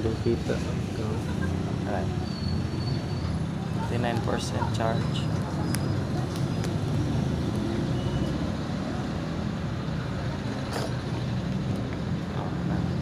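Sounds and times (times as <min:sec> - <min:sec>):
low rumble of road traffic: 0:00.0 - 0:13.0.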